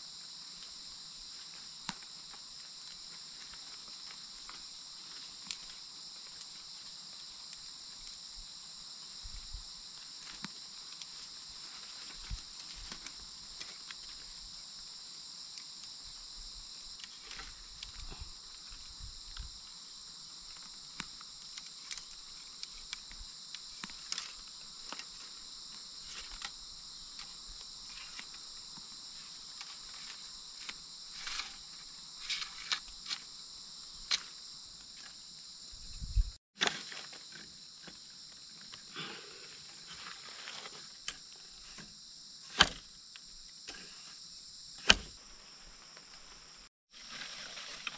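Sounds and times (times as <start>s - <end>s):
insects droning: 0.0s - 47.9s
bamboo poles clicking and knocking: 20.5s - 25.4s, 42.5s - 42.9s.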